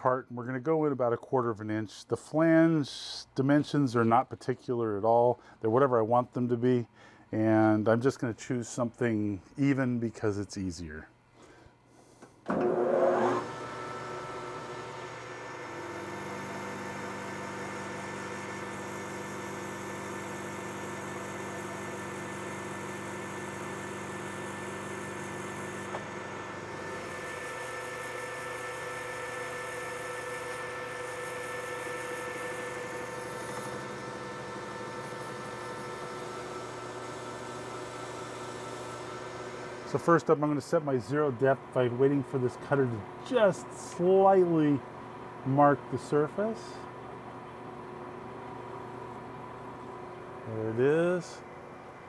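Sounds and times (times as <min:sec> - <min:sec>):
metal lathe spindle whining and humming: 0:12.5 - 0:40.0.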